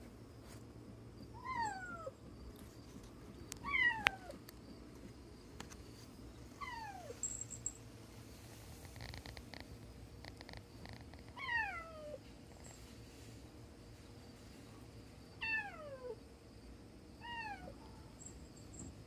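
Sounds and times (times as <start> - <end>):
cat crying: 11.4 - 12.2, 17.2 - 17.8.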